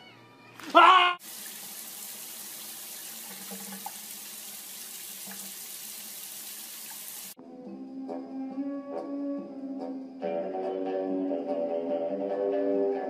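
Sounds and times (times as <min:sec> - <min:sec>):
running water splashing: 0:01.2 - 0:07.4.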